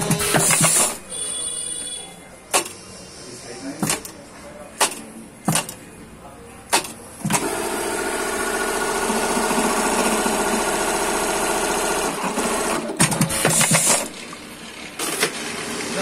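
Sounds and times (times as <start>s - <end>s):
sharp machine clacks: 0.0s - 1.0s, 12.1s - 15.5s
machine clicks: 2.5s - 2.8s, 4.8s - 5.8s, 6.7s - 7.5s
sewing machine stitching: 6.7s - 16.0s.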